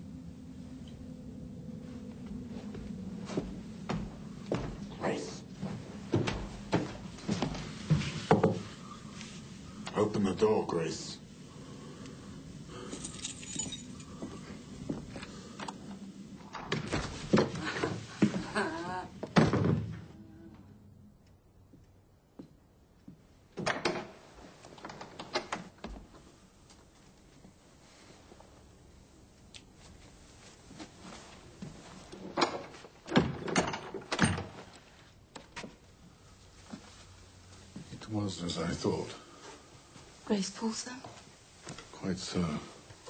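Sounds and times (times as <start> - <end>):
wooden door creaking: 32.3 - 34.7.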